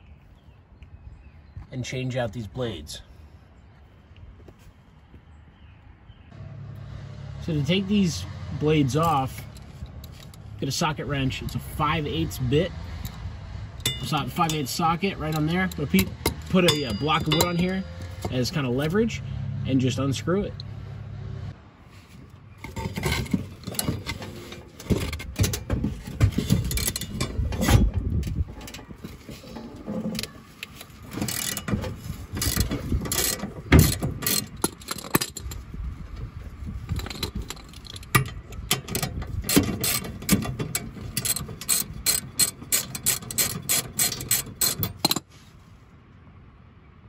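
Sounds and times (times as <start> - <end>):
ratchet wrench clicking: 31.2 - 31.7, 32.4 - 35.5, 36.9 - 40.5, 41.1 - 45.2.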